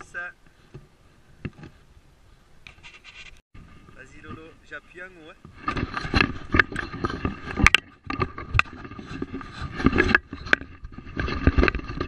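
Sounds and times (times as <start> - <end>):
wind: 0.0 - 12.0
water noise: 3.6 - 12.0
knocks and clunks in boat: 5.4 - 12.0.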